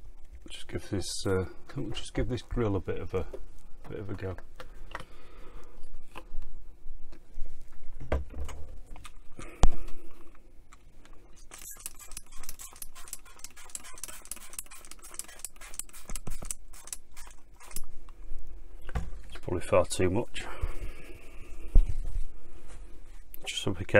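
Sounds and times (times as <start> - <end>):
spray bottle squirting: 11.6 - 17.8.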